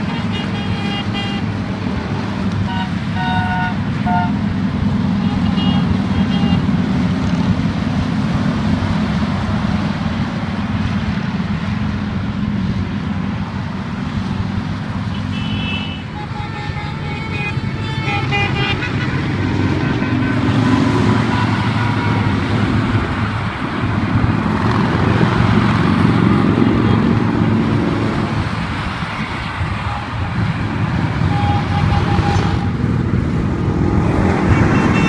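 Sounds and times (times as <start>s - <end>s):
vehicle horn toots: 0.0s - 1.5s, 2.6s - 4.4s, 5.2s - 6.6s, 15.1s - 22.3s, 31.2s - 32.8s, 34.3s - 35.0s
traffic rumble: 0.0s - 35.0s.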